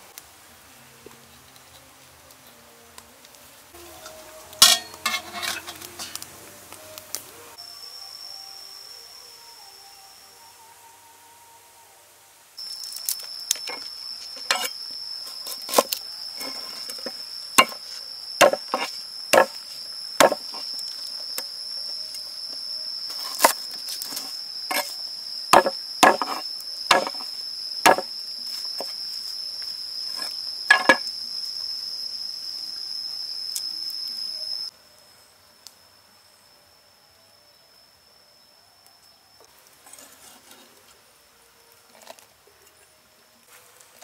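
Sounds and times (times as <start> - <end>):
insect trilling: 3.9 - 12.0, 12.6 - 39.5.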